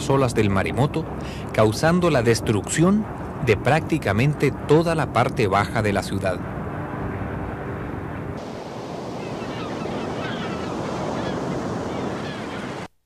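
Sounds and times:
ocean waves breaking: 0.0 - 12.9.

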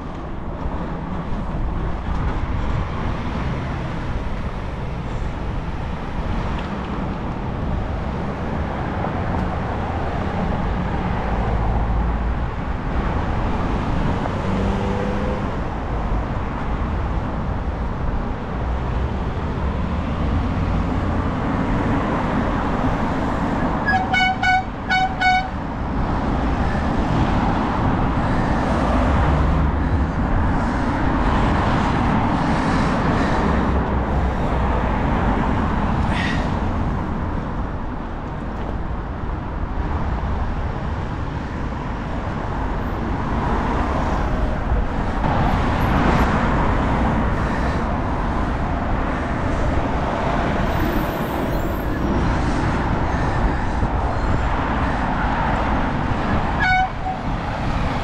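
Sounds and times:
cars passing on busy road: 0.0 - 58.0.

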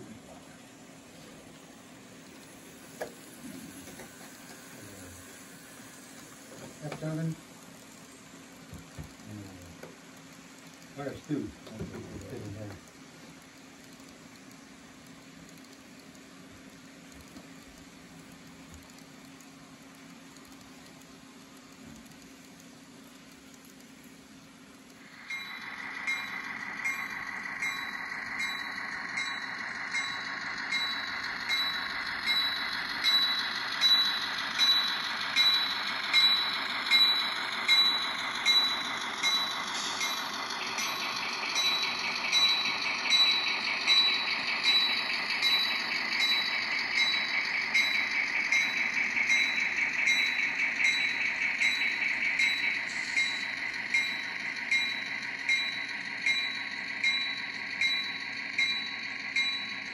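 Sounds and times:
model train locomotive whine: 0.0 - 59.9
wheels clicking over track: 24.7 - 59.9.

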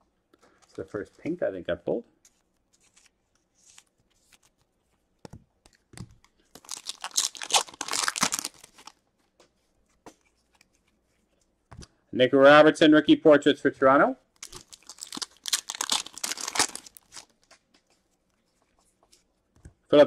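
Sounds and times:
wrapper tearing open: 6.5 - 9.0, 14.4 - 17.5.

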